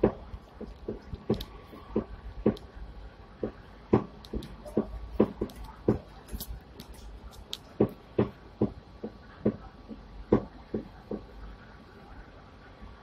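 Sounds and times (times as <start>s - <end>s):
dull knocks and thumps: 0.0s - 2.7s, 3.4s - 6.2s, 7.8s - 11.4s.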